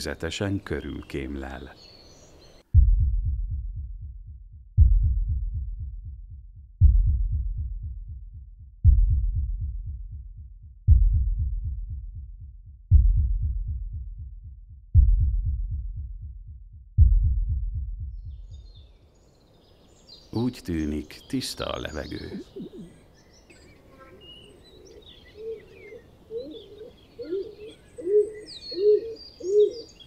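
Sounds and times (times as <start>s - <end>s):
deep bass hits: 2.7s - 18.9s.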